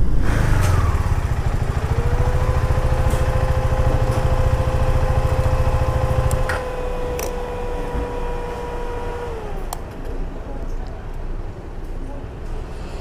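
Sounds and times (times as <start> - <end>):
heavy low rumble: 0.0 - 6.5
motorcycle engine whine: 0.0 - 10.5.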